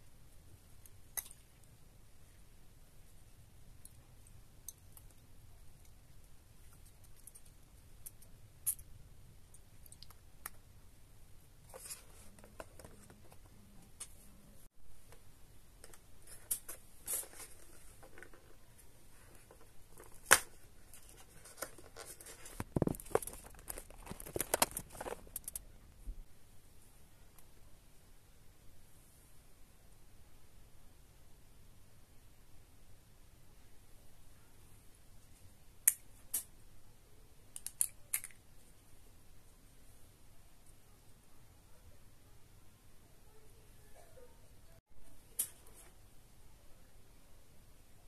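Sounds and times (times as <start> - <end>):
packaging clicks and rustles: 19.2 - 25.6.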